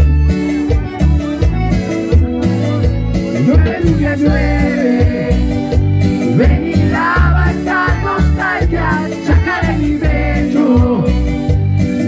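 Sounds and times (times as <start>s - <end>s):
live band music: 0.0s - 12.0s
man singing into microphone: 3.4s - 11.3s.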